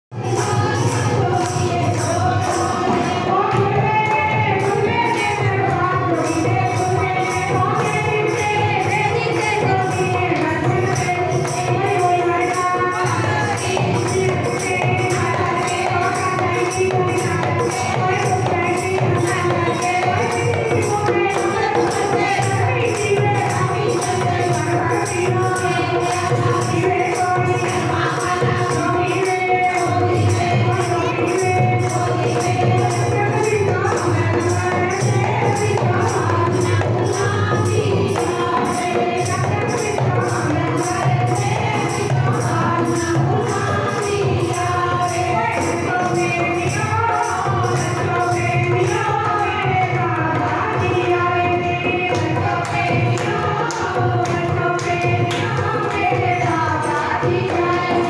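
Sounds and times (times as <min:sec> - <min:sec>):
group singing: 0:00.1 - 0:58.0
jingling percussion beat: 0:00.1 - 0:58.0
people clapping: 0:52.2 - 0:56.3.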